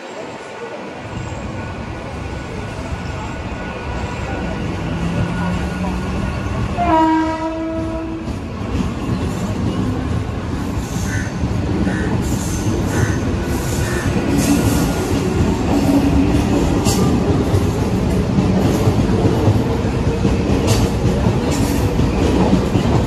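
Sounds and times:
train coaches rumbling over rails: 0:00.0 - 0:23.0
train horn: 0:06.8 - 0:08.3.

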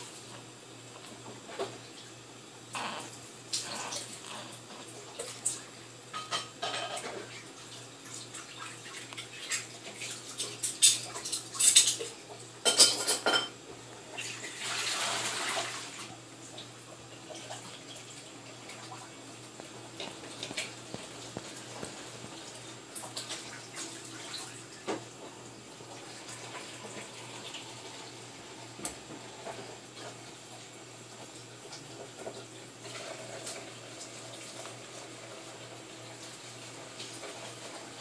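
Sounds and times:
dishes and cutlery clinking: 0:06.1 - 0:07.4, 0:09.2 - 0:13.6.

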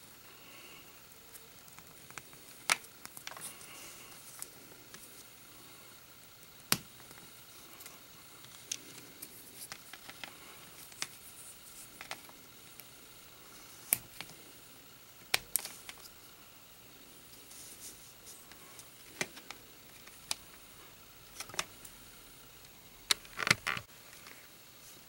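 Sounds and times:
plastic parts clicking together: 0:09.6 - 0:11.2, 0:23.1 - 0:23.9.

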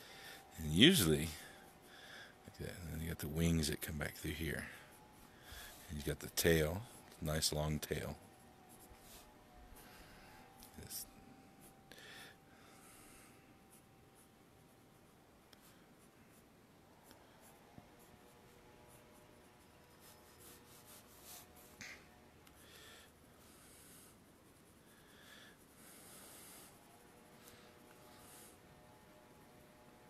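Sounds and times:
pencil scratching on paper: 0:17.4 - 0:21.8, 0:22.5 - 0:29.9.

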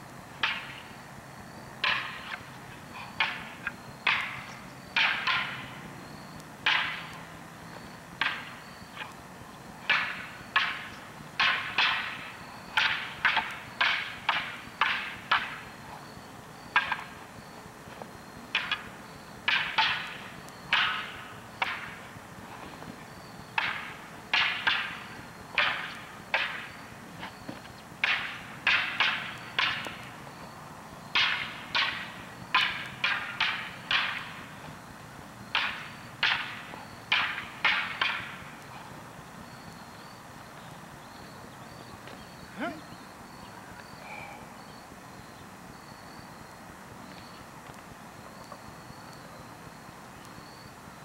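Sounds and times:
wooden poles clacking together: 0:01.8 - 0:02.4, 0:03.1 - 0:05.8, 0:06.6 - 0:07.2, 0:08.2 - 0:09.1, 0:09.8 - 0:15.6, 0:16.8 - 0:17.2, 0:18.5 - 0:18.9, 0:19.5 - 0:22.1, 0:23.6 - 0:30.0, 0:31.2 - 0:34.5, 0:35.5 - 0:38.6.

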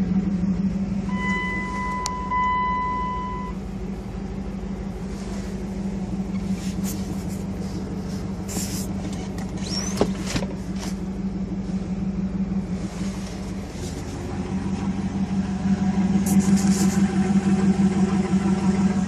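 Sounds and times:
car cabin engine hum: 0:00.0 - 0:19.0
high electronic tone: 0:01.1 - 0:03.6
brushing handling noises: 0:05.0 - 0:11.9, 0:12.7 - 0:14.3, 0:16.2 - 0:17.1.

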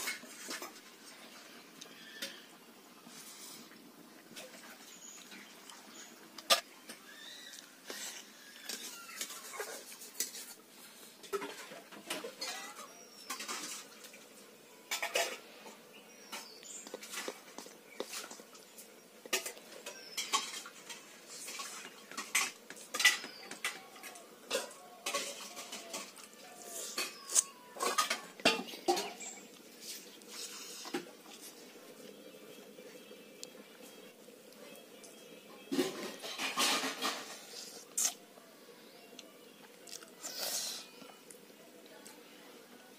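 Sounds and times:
chewing and lip-smacking: 0:37.8 - 0:38.2.

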